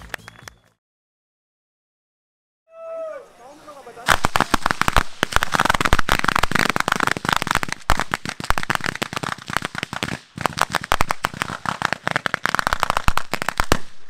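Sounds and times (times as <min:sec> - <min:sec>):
fireworks crackling bangs: 0:03.4 - 0:14.0.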